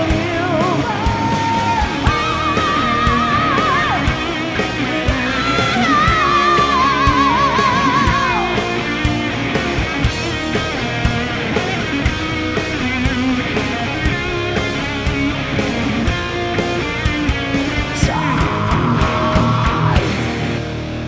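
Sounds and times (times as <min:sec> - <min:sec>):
drum beat: 0:00.0 - 0:20.5
distorted electric guitar: 0:00.0 - 0:21.0.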